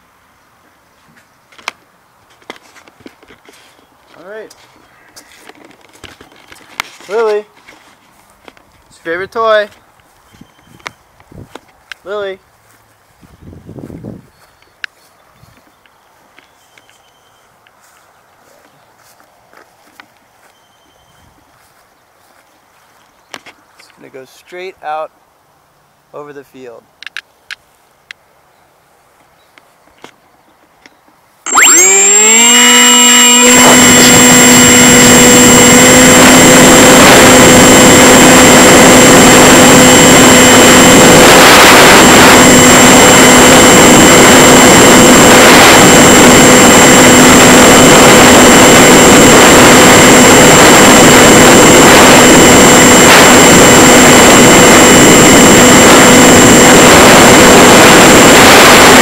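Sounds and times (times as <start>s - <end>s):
electric motor whine: 31.5s - 59.0s.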